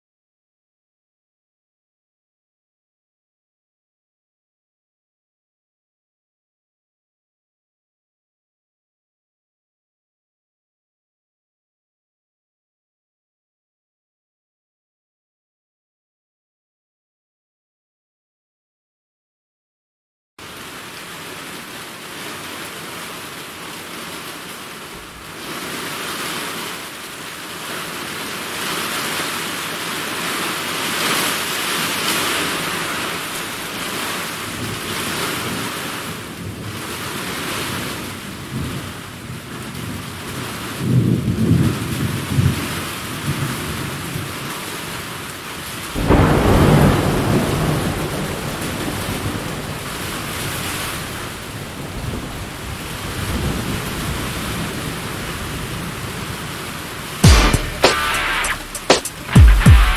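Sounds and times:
steady rain: 0:20.4 - 0:59.9
thunder rumbling: 0:45.9 - 0:51.2.

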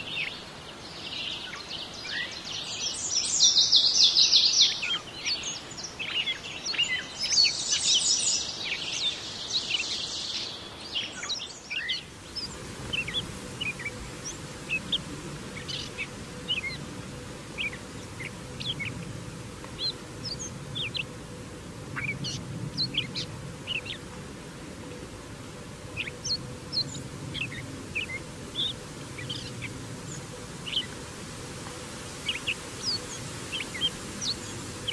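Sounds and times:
bird singing varied phrases: 0:00.0 - 0:19.1.

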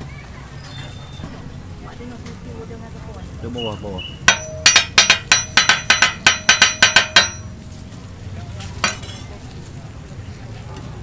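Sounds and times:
metal spatula clacking on griddle: 0:04.2 - 0:07.5, 0:08.8 - 0:09.3.

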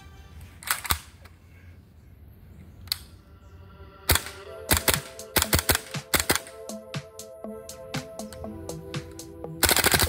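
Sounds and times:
airsoft rifle shots: 0:04.1 - 0:06.6, 0:09.6 - 0:10.0.

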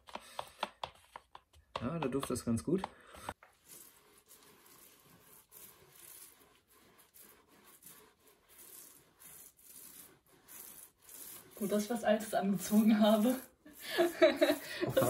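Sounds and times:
paint roller swishing on wall: 0:03.2 - 0:15.0.

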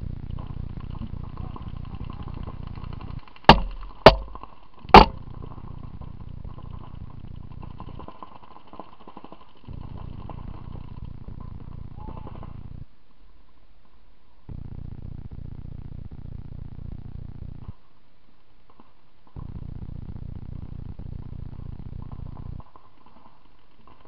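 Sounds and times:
steady low rumble: 0:00.0 - 0:08.2, 0:09.7 - 0:13.0, 0:14.5 - 0:17.8, 0:19.4 - 0:22.7
paintball marker pops: 0:03.5 - 0:05.2.

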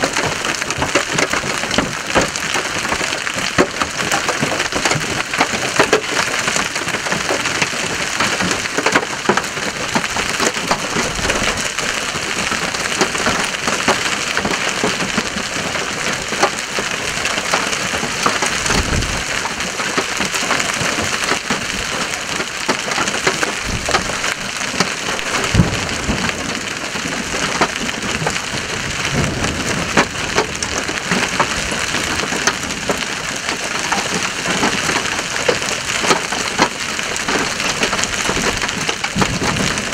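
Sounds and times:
large hail pelting down: 0:00.0 - 0:39.9
low rumbles: 0:09.4 - 0:20.4, 0:23.4 - 0:33.5.

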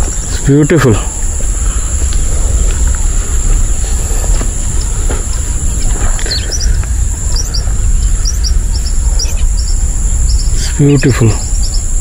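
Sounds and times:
high insect drone: 0:00.0 - 0:12.0
low rumble: 0:00.0 - 0:12.0
footsteps on dry leaves: 0:01.2 - 0:07.9
small bird chirping: 0:03.0 - 0:12.0.

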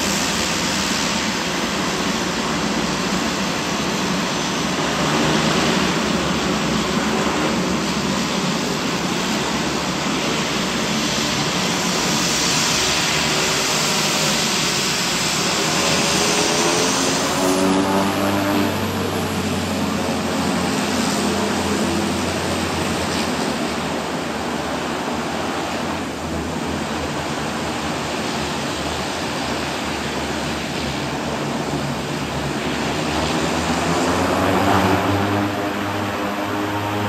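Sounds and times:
propeller hum: 0:00.0 - 0:37.0
turboprop engines whining: 0:00.0 - 0:37.0.

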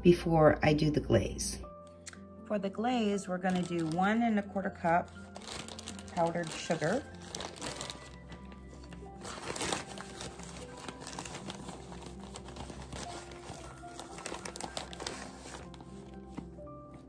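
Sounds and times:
background music: 0:00.0 - 0:17.0
plastic bag crinkling: 0:03.2 - 0:16.4.

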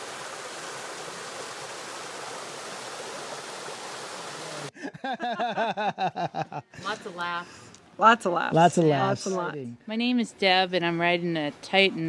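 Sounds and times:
stream splashing over rocks: 0:00.0 - 0:04.7
woman laughing heartily: 0:04.7 - 0:07.0.

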